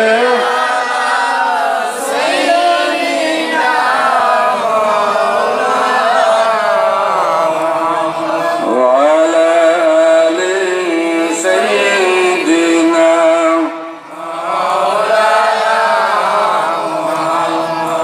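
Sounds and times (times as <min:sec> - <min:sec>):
person chanting: 0:00.0 - 0:18.0.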